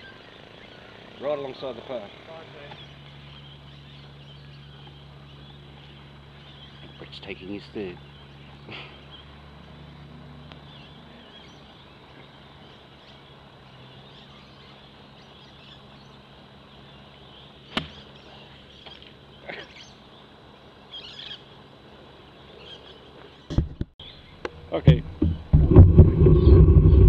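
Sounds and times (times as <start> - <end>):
bird chirps: 0.0 - 21.6, 22.3 - 24.6
golf club striking ball: 17.7 - 18.1.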